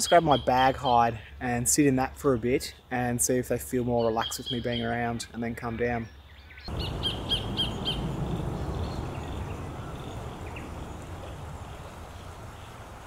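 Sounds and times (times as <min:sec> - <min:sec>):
low outdoor background noise: 0:00.0 - 0:13.0.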